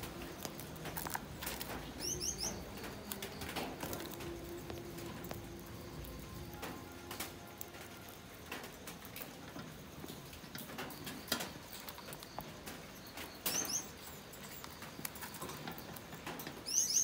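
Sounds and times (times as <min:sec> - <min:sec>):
birds pecking and scratching seed: 0:00.0 - 0:17.0.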